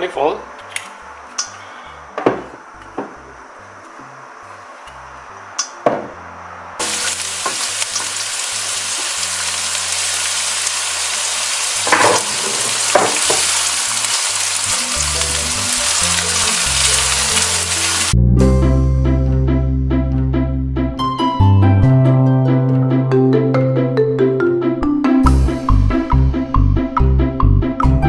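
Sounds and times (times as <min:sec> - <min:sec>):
shallots and garlic sizzling in oil: 0:06.8 - 0:18.2
background music: 0:13.7 - 0:28.0.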